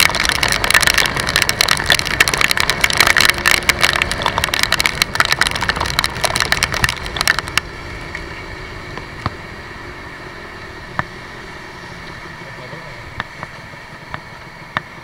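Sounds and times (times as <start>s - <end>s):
heavy rain hitting microphone: 0.0s - 7.7s
motorcycle road noise hum: 0.0s - 15.0s.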